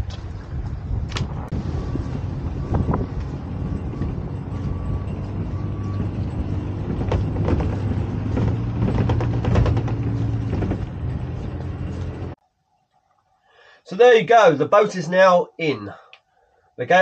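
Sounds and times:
car engine droning: 0:01.4 - 0:12.4
trailer rattling over cobbles: 0:01.6 - 0:12.4.

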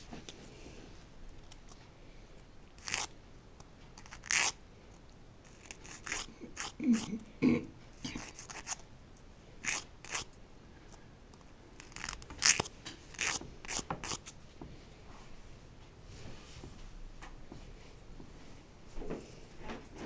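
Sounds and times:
nail file rasping: 0:02.8 - 0:03.1, 0:04.0 - 0:04.6, 0:05.4 - 0:07.1, 0:08.1 - 0:08.8, 0:09.6 - 0:10.3, 0:11.8 - 0:14.4.

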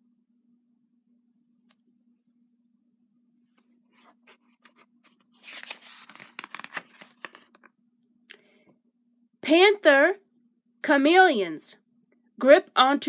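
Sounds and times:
book pages turning: 0:03.6 - 0:07.7
paper rustling and crinkling: 0:03.9 - 0:07.7.

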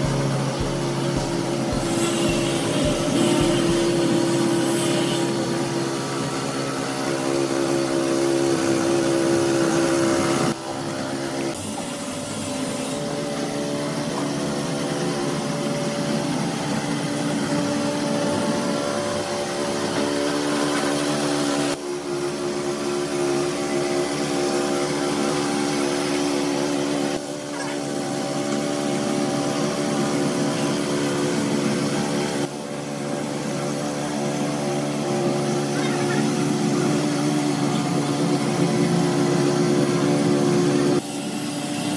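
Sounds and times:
mini tiller engine running: 0:00.0 - 0:04.6
tines churning sand and cement: 0:00.0 - 0:10.6.

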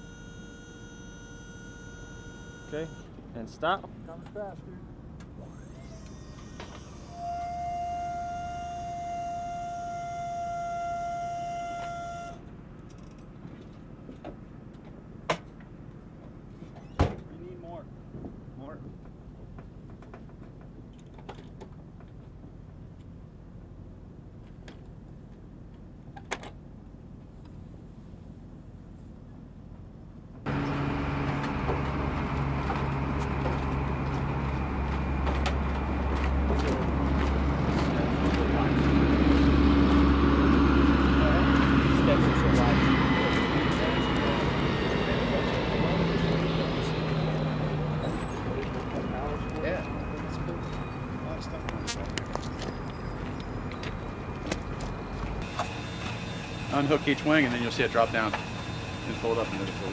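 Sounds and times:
high whining tone: 0:00.0 - 0:03.2, 0:05.4 - 0:13.2, 0:30.5 - 0:59.9
steady engine hum: 0:00.0 - 0:59.9
footsteps on wooden stairs: 0:31.2 - 0:40.1.

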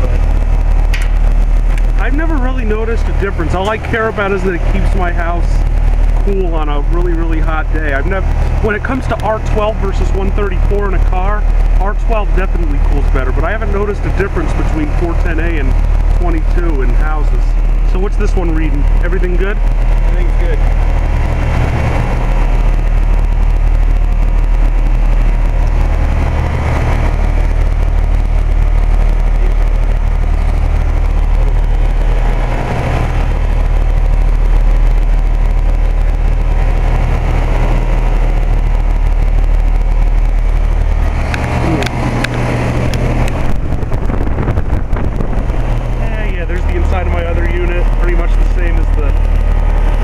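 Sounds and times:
compressor humming: 0:00.0 - 0:50.0
condenser fan rushing: 0:00.0 - 0:50.0.

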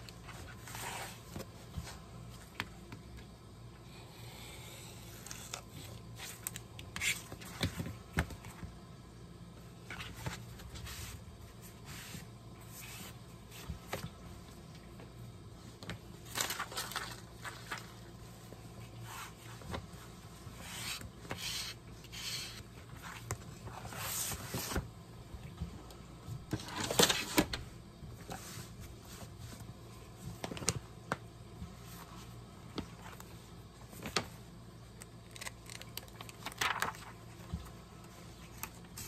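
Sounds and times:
paper rustling and scraping: 0:00.2 - 0:02.0, 0:35.3 - 0:37.2.

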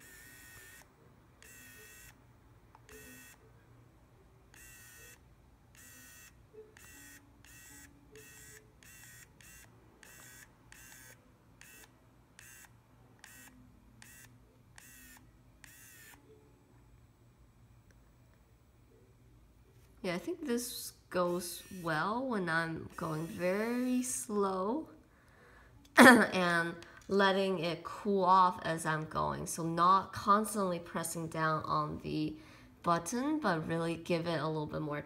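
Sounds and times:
faint whine of pen motor: 0:00.0 - 0:26.0.

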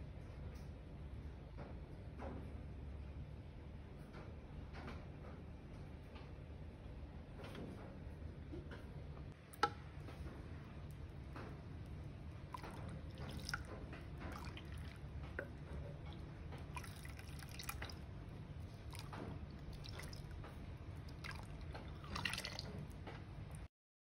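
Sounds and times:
low steady hum: 0:00.0 - 0:23.7
liquid pouring and splashing: 0:09.4 - 0:23.7.

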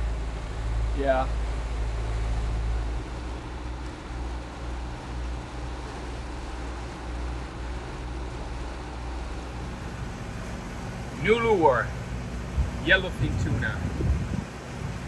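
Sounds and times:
steady low rumble: 0:00.0 - 0:15.0
water rushing: 0:00.0 - 0:15.0
wind: 0:00.0 - 0:15.0.

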